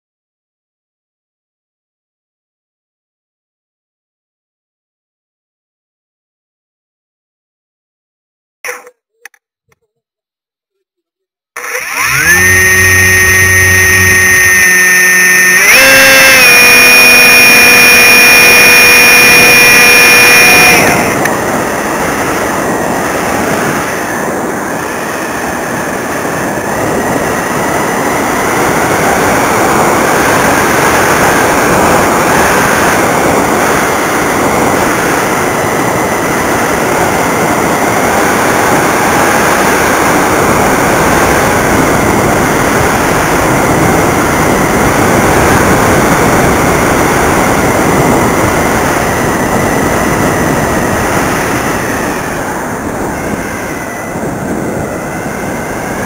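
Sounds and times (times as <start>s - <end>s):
electric motor whining: 11.6s - 56.0s
wind rushing over airframe: 20.0s - 56.0s.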